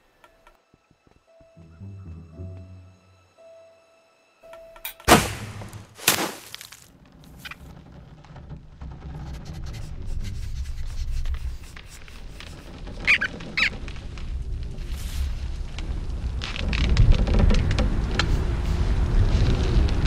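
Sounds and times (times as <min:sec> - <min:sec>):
short high squeaks: 0:12.3 - 0:13.8.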